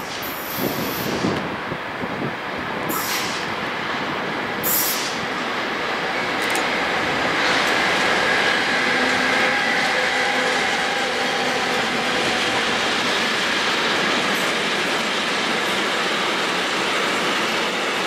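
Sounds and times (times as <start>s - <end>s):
train wheels rolling on rails: 0.0s - 18.0s.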